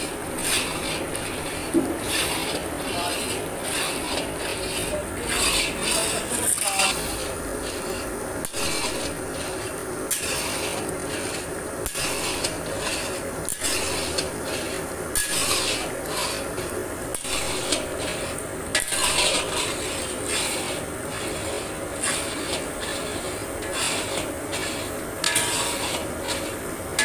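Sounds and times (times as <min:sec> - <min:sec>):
metal spatula scraping a wok: 0:00.0 - 0:27.0.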